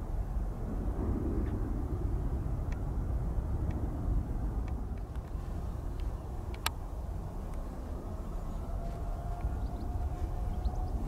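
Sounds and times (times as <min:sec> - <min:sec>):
distant jet engines rumbling: 0:00.0 - 0:11.0
light clicks: 0:06.0 - 0:06.8.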